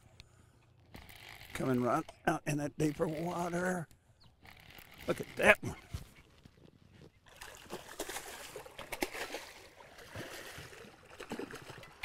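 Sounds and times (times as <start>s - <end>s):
fish splashing at water surface: 7.3s - 12.0s.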